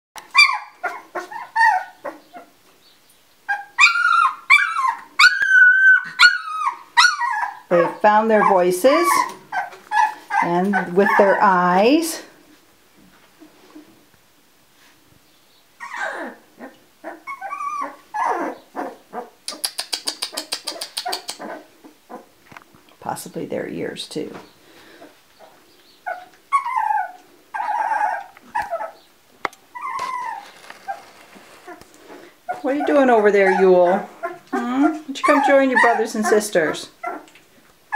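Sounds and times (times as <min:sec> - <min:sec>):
puppies crying: 0:00.2 - 0:02.5, 0:03.5 - 0:11.7, 0:15.8 - 0:19.4, 0:25.0 - 0:37.4.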